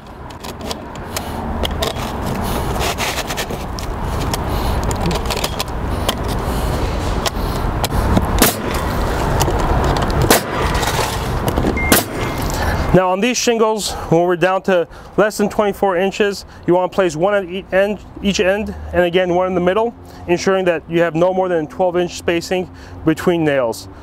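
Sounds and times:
nail gun shots: 8.4s - 8.8s, 10.2s - 10.7s, 11.9s - 12.3s.

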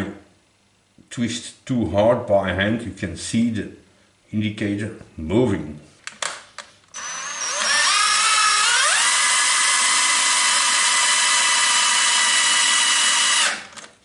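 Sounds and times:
lathe motor whining: 7.0s - 13.7s.

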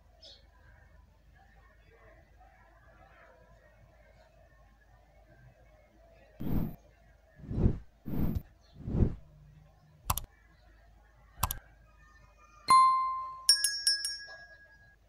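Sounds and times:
short swishes: 6.4s - 6.8s, 7.4s - 9.2s
mouse clicks: 10.1s - 10.3s, 11.4s - 11.6s
ringing ding: 12.7s - 14.9s
bell chime jingle: 12.7s - 15.0s.

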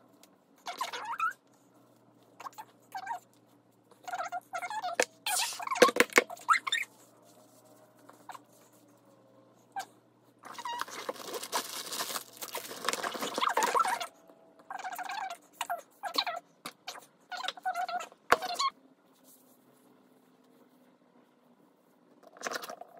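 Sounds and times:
short squeaky sounds: 0.6s - 1.4s, 4.0s - 7.0s, 12.5s - 18.8s.

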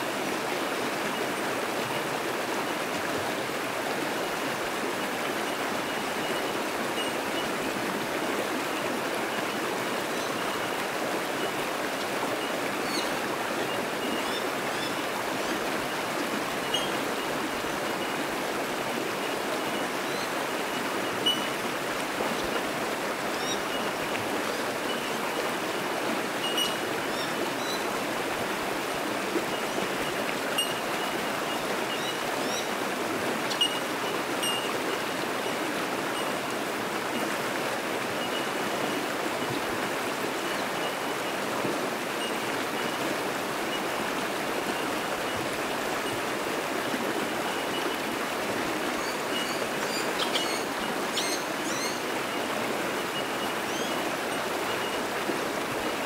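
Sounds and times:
creek rushing over rocks: 0.0s - 56.0s
high pinging bird calls: 16.6s - 17.0s, 21.1s - 21.6s, 23.3s - 23.9s, 26.4s - 27.9s, 29.5s - 32.7s, 33.4s - 34.8s, 49.0s - 52.0s.

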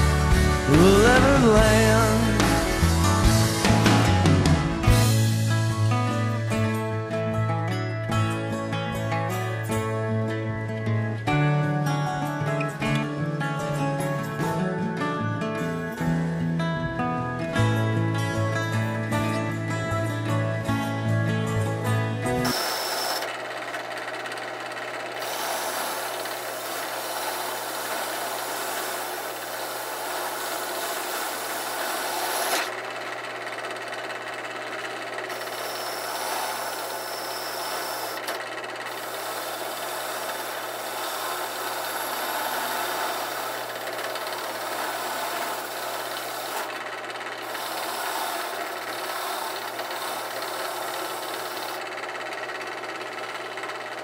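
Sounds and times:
drill press motor hum: 22.1s - 54.0s.

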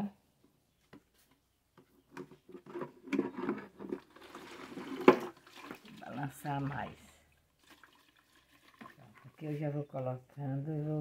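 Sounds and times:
water pouring and splashing: 3.8s - 9.5s.

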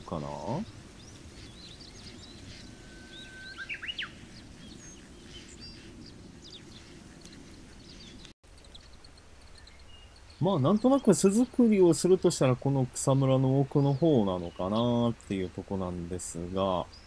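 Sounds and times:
low background noise: 0.0s - 17.0s
wild birds calling: 0.0s - 17.0s
high bird chirps: 0.5s - 11.6s
bird whistle: 2.4s - 4.2s.

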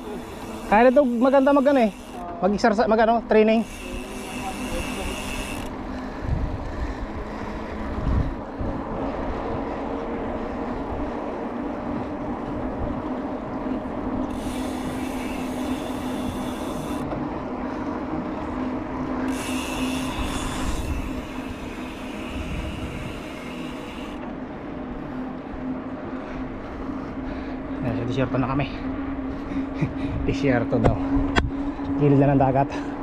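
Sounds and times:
bicycle freewheel buzzing: 0.0s - 11.9s, 13.8s - 25.3s
bicycle tyre hum on asphalt: 0.0s - 33.0s
wind: 0.0s - 33.0s.

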